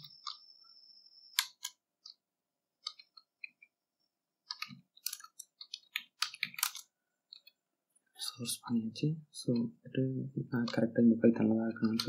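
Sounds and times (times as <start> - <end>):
keyboard typing: 1.3 - 3.7, 4.4 - 7.6, 9.4 - 12.0.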